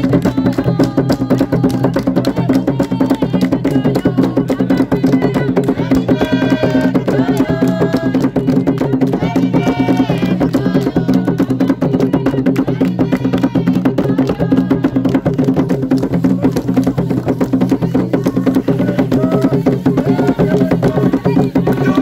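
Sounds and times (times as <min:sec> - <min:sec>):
group singing: 0:00.0 - 0:22.0
hand claps: 0:00.0 - 0:22.0
rapid hand drumming: 0:00.0 - 0:22.0.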